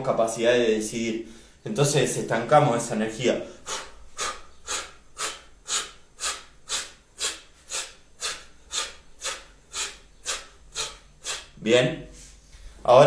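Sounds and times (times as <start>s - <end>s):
man's forceful exhalations: 3.4s - 12.8s.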